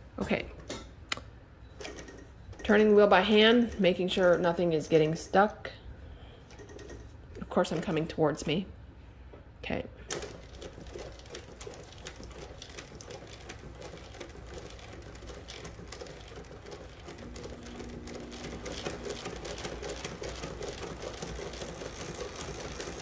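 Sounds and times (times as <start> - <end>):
embroidery machine clattering: 10.1 - 23.0.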